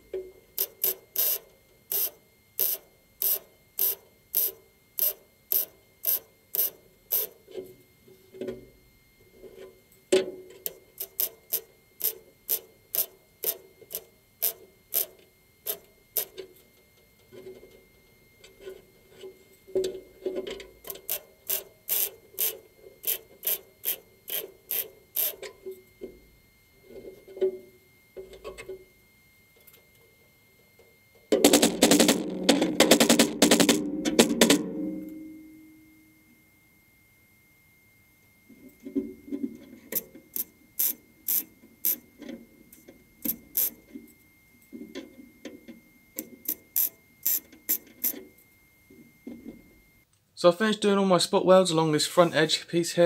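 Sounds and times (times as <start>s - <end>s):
welder arc crackling: 0.6s - 7.4s, 10.7s - 16.4s, 20.8s - 25.4s, 31.4s - 34.6s, 39.9s - 42.0s, 43.2s - 43.8s, 46.2s - 48.2s.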